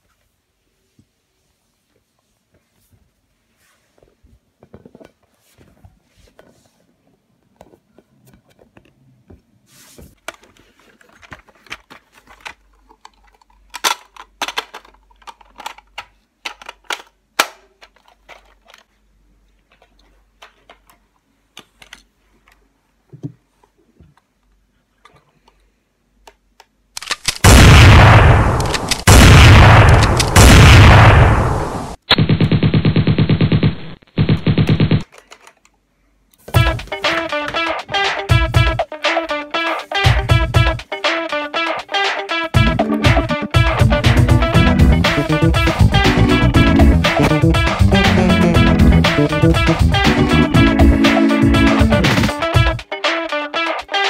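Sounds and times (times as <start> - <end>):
magazine snapping in: 27.0 - 27.4, 28.6 - 29.1, 29.8 - 30.4
plastic toy blaster clicks: 27.0 - 27.4, 28.6 - 29.1
machine-gun fire bursts: 27.3 - 35.0.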